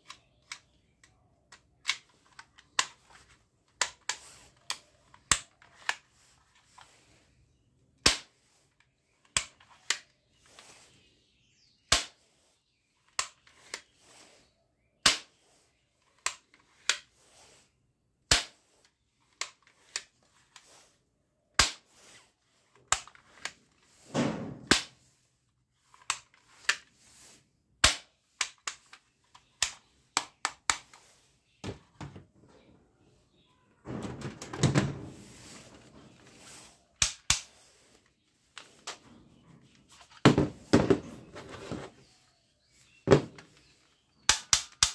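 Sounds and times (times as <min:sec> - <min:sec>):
plastic toy guns clicking: 0:00.0 - 0:07.0, 0:08.0 - 0:08.4, 0:09.2 - 0:10.1, 0:15.0 - 0:15.3, 0:21.6 - 0:21.8, 0:22.8 - 0:23.6, 0:25.8 - 0:26.9, 0:27.8 - 0:31.1, 0:37.0 - 0:37.6, 0:43.6 - 0:44.9
plastic handling noise: 0:28.3 - 0:44.6.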